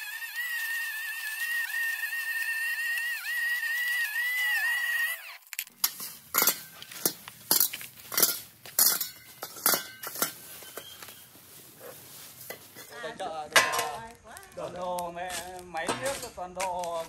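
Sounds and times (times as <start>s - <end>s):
dishes and glassware clinking: 5.8s - 11.0s, 13.6s - 14.0s.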